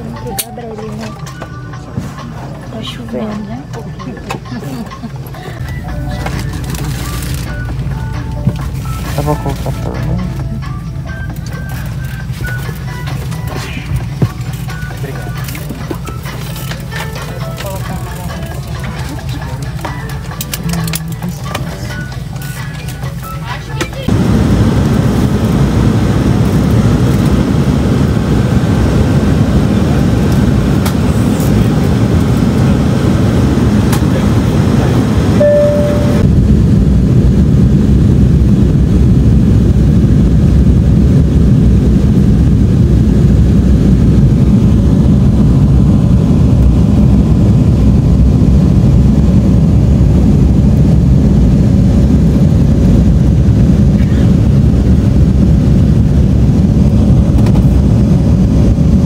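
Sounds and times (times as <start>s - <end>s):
airliner cabin engine rumble: 0.0s - 59.0s
brief single tone: 35.4s - 36.3s.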